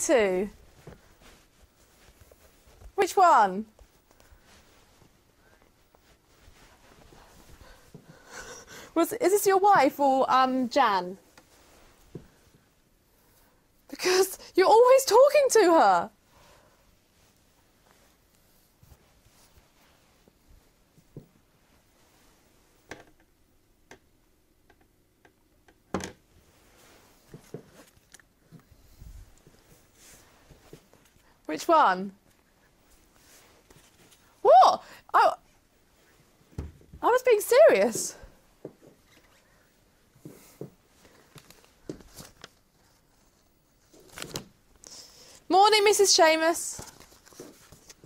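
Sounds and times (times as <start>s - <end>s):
small clicks and knocks at desk: 23.9s - 26.2s.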